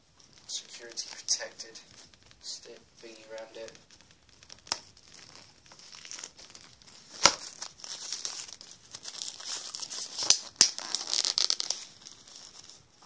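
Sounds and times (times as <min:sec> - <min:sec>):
plastic shrink-wrap crinkling: 0:00.0 - 0:13.0.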